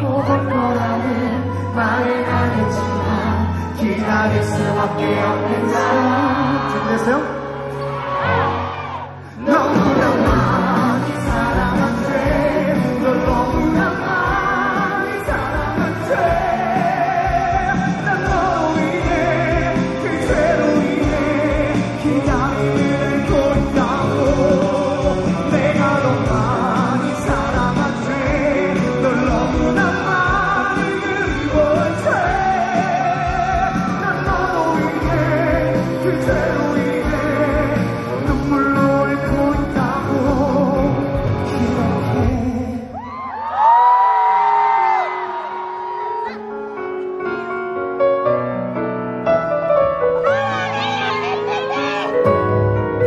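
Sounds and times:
man singing: 0.0s - 7.8s, 9.2s - 43.3s
rock band playing ballad: 0.0s - 43.2s
drums: 1.9s - 44.8s
guitars: 9.4s - 42.8s.

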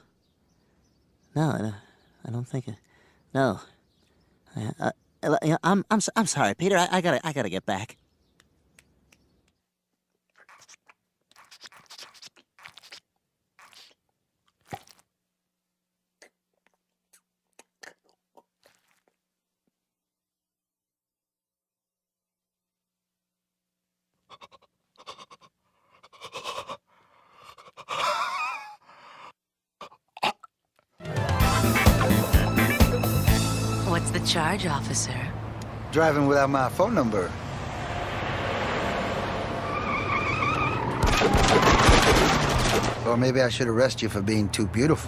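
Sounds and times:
baby sucking and slurping: 10.3s - 15.1s, 16.6s - 19.2s
wet smack: 14.6s - 15.0s
music: 31.0s - 35.1s.

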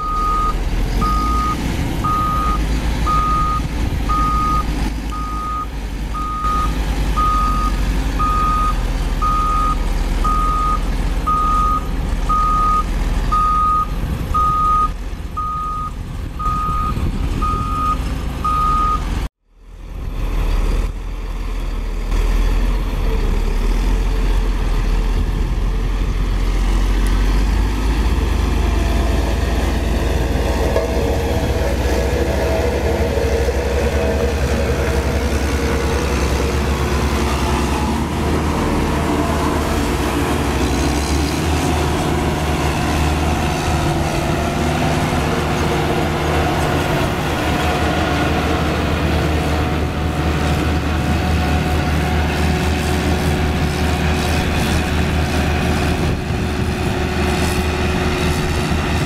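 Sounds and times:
back-up alarm beeping: 0.0s - 19.0s
diesel engine running: 0.0s - 59.0s.

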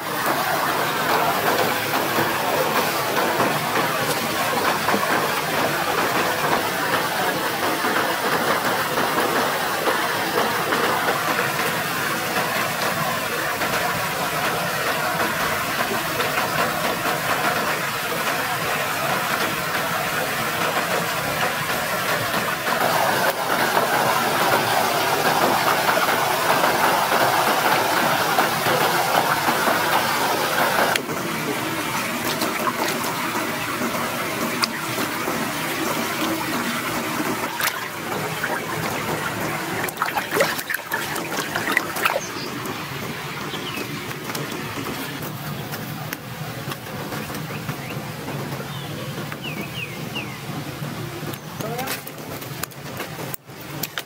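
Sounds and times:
waterfall and stream rushing: 0.0s - 54.0s
hands splashing in water: 23.0s - 42.8s.

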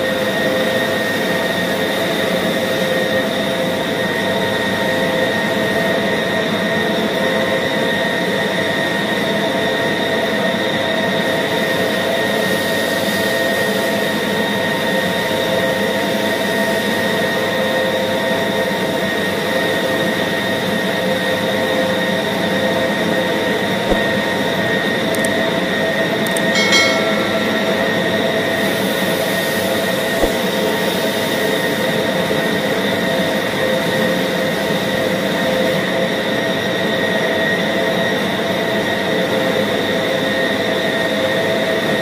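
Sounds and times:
brief high-pitched sound: 26.4s - 28.6s.

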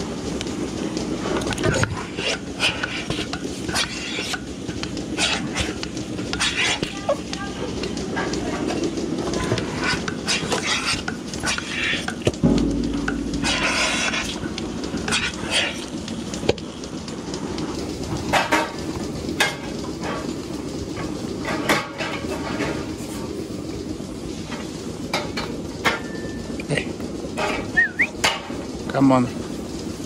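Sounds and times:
heavy thump: 12.4s - 14.7s.

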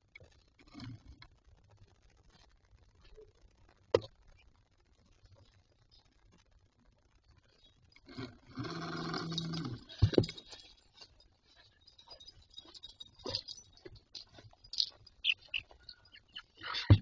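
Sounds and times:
hens pecking at camera: 9.0s - 17.0s.

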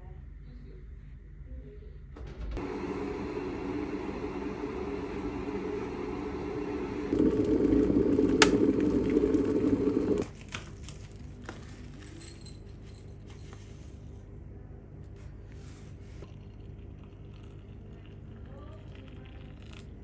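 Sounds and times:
kettle heating water rumble: 2.6s - 10.2s, 16.1s - 20.0s
tea leaves rustling into infuser: 15.6s - 20.0s.

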